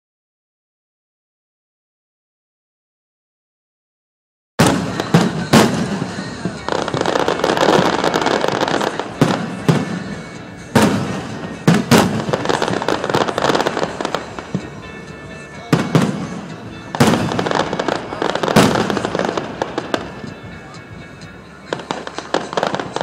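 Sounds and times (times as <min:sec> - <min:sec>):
firework shells bursting: 0:04.6 - 0:20.4
fireworks crackling: 0:04.6 - 0:23.0.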